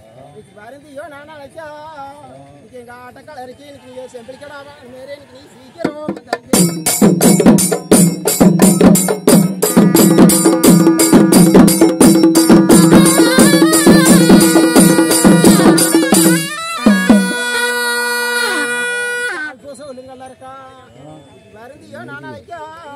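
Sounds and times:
barrel drums beating fast rhythm: 5.8s - 18.8s.

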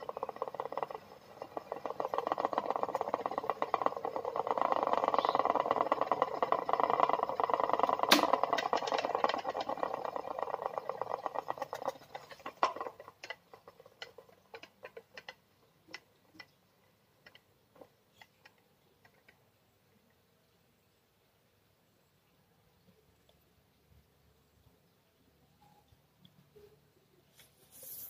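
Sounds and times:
electric fan: 0.0s - 16.6s
plastic propeller rattling clicks: 0.0s - 16.6s, 17.2s - 19.4s.

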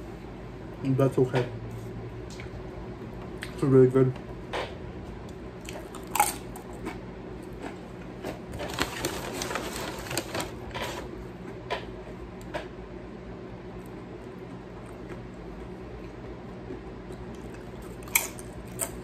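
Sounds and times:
person chewing food: 5.2s - 9.2s, 13.8s - 19.0s.

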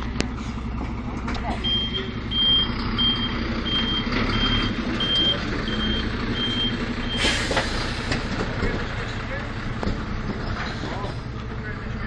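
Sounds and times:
diesel engine running: 0.0s - 12.0s
reversing alarm beeping: 1.6s - 7.4s
air brake hiss: 7.2s - 8.2s.

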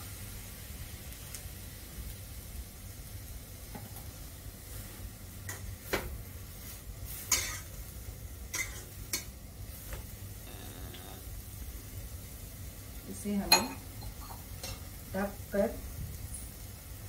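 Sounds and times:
faint sizzle: 0.0s - 17.0s
metal spatula scraping a pan: 7.1s - 7.7s, 8.5s - 9.3s.

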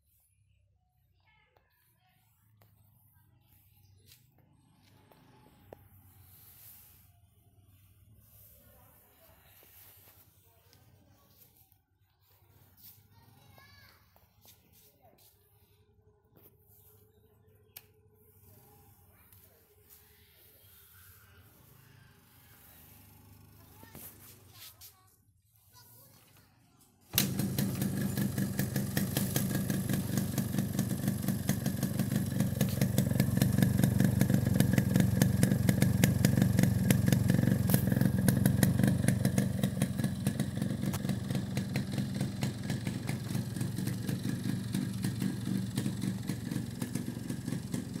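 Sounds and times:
two-stroke motorcycle engine running: 27.1s - 48.0s.

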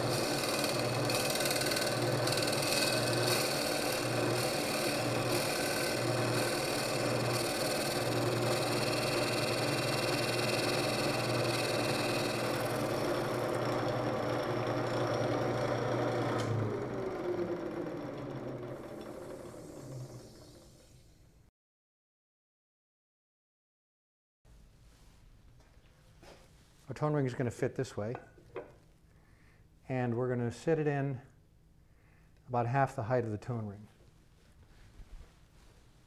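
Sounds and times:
cutting tool shaving wood: 0.0s - 20.3s
wood lathe running: 0.0s - 21.0s.

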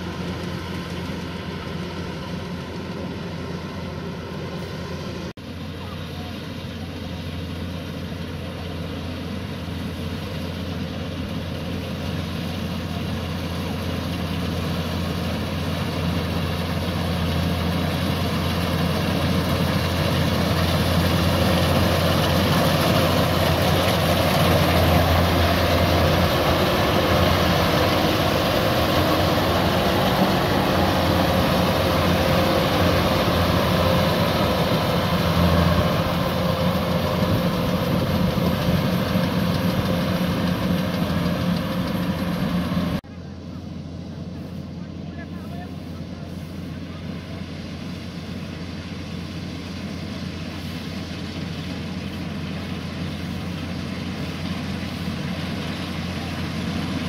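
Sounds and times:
diesel engine hum: 0.0s - 57.0s
threshing machinery: 13.7s - 43.0s.

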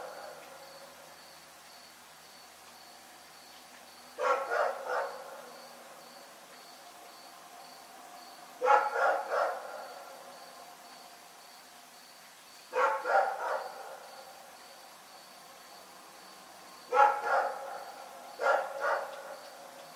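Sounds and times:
dog barking: 4.2s - 5.5s, 8.6s - 10.1s, 12.7s - 14.1s, 16.9s - 19.5s.

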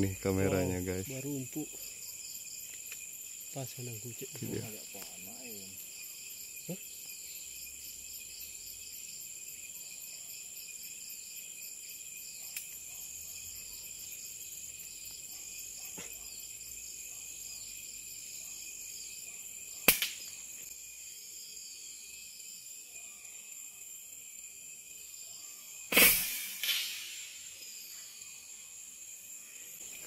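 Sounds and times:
crickets and insects trilling: 0.0s - 30.0s
gunshot crack: 25.9s - 27.3s.

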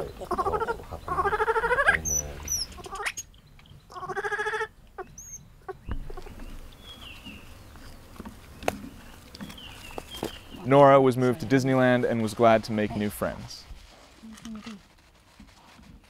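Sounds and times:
baby monkey stuttering call: 0.2s - 3.2s, 3.9s - 6.3s
faint high bird chirps: 5.0s - 7.6s.

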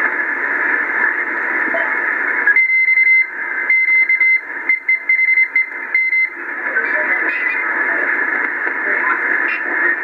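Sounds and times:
radio receiver hiss: 0.0s - 10.0s
morse code whistling tone: 2.5s - 6.3s.

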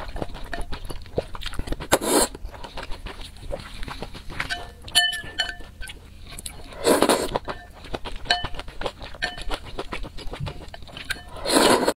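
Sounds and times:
wet chewing clicks: 0.0s - 12.0s
loud slurp: 1.8s - 2.4s, 6.6s - 7.4s, 11.3s - 12.0s
chopsticks clinking on porcelain bowl: 4.4s - 5.9s, 7.5s - 9.6s.

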